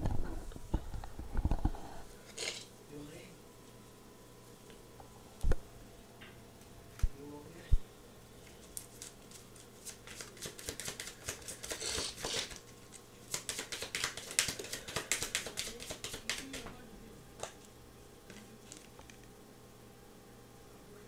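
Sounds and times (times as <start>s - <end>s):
cards being shuffled: 8.6s - 16.8s.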